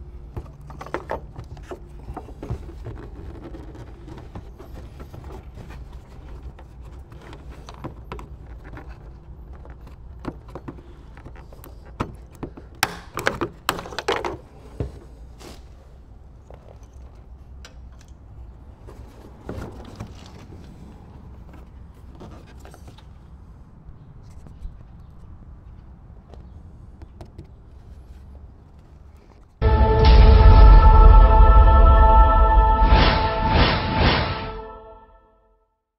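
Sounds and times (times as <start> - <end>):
plastic and metal clicks and scrapes: 0.4 - 14.4.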